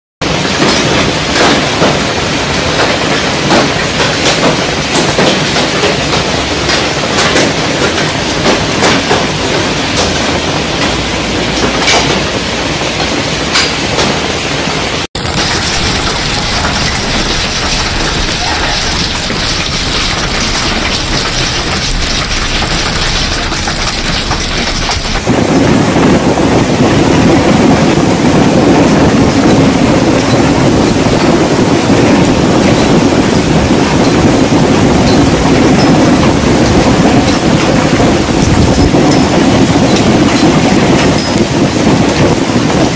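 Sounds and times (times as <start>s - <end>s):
heavy hail and rain: 0.2s - 42.9s
low rumble: 15.2s - 27.7s.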